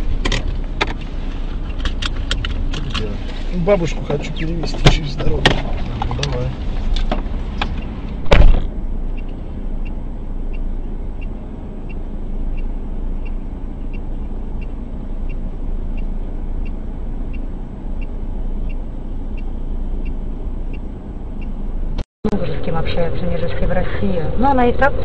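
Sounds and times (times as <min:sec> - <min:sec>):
steady low rumble: 0:00.0 - 0:25.0
car door opening clunk: 0:07.0 - 0:08.8.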